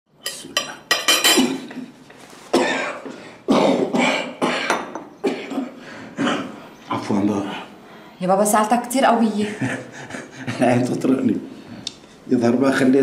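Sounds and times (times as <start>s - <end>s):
man coughing hard: 2.6s - 6.6s.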